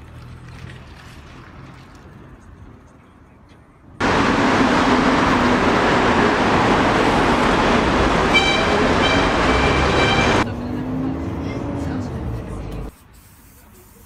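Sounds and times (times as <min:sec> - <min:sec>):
cars driving past: 0:04.0 - 0:12.9.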